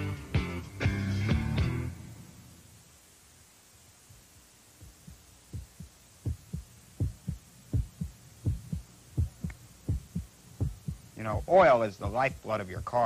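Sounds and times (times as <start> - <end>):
heartbeat thumps: 4.0 - 13.0.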